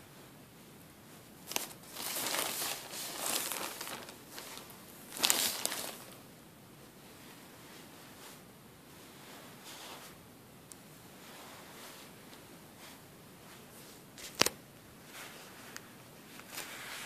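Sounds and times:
plastic bag crinkling: 0:01.5 - 0:06.2.

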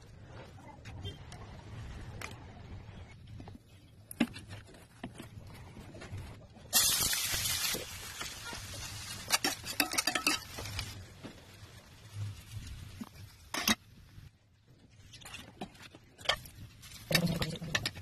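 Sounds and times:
onions sizzling in hot oil: 0:06.7 - 0:13.5
metal utensil clinking on pan: 0:09.3 - 0:10.8.

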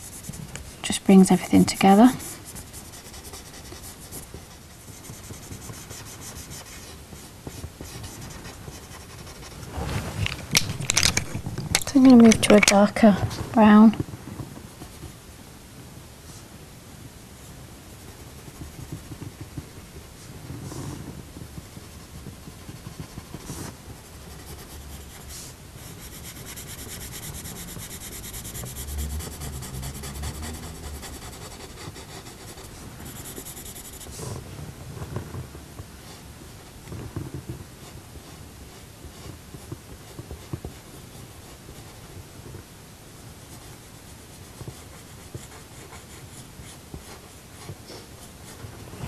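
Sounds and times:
coloured pencil scratching on paper: 0:00.0 - 0:09.6, 0:18.0 - 0:19.8, 0:20.7 - 0:34.4, 0:43.5 - 0:48.6.

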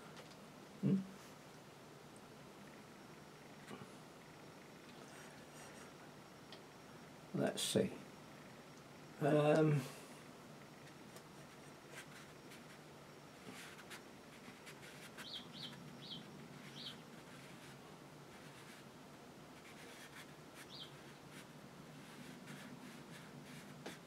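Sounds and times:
brush strokes on paper: 0:16.5 - 0:18.9, 0:19.6 - 0:24.0.

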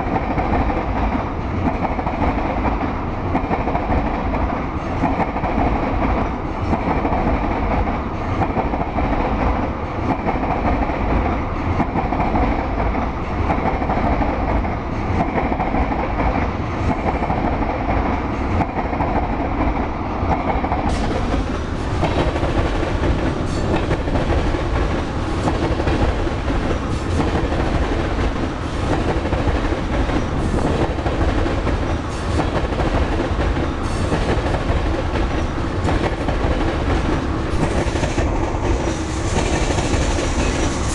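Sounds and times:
train wheels rumbling on rail: 0:00.0 - 0:40.9.

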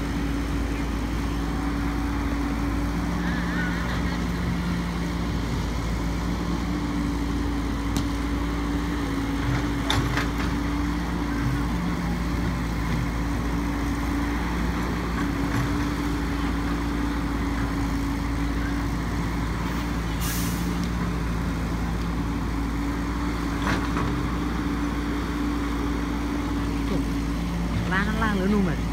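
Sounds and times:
heavy diesel machinery running: 0:00.0 - 0:28.9
air hiss: 0:20.2 - 0:20.8.

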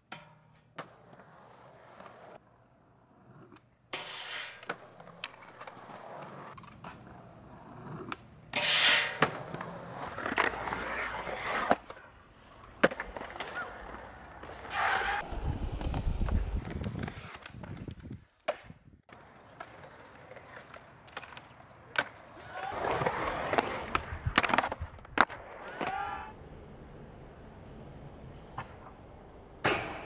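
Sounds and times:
skateboard wheels rolling on concrete: 0:00.0 - 0:30.0
skateboard clacks: 0:16.6 - 0:26.0.

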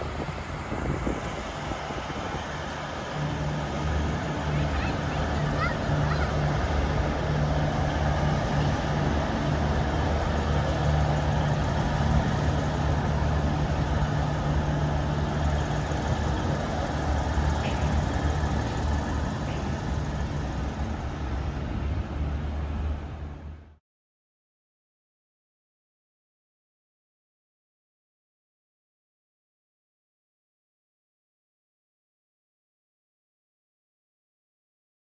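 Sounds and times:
diesel railcar engine drone: 0:00.0 - 0:23.8
wheels rumbling on track: 0:00.0 - 0:23.8.

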